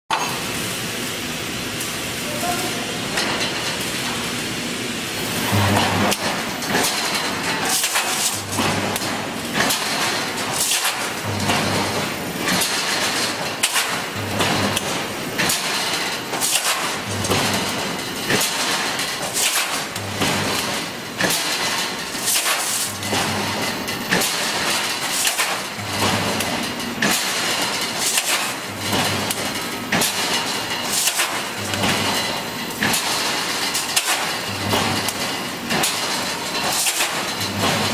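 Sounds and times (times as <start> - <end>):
welding machine low hum: 0.1 - 37.9.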